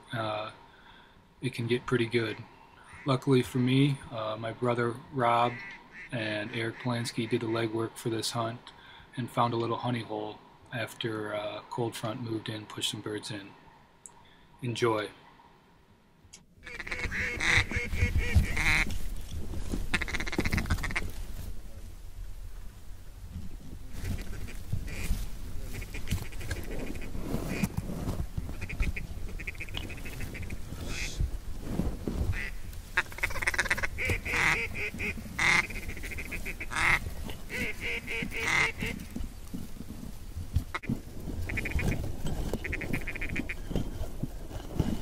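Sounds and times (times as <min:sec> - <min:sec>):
duck quacking: 0:05.5 - 0:06.9, 0:16.6 - 0:18.9, 0:19.9 - 0:21.1, 0:24.1 - 0:25.1, 0:28.5 - 0:31.2, 0:32.3 - 0:39.0, 0:41.5 - 0:43.6.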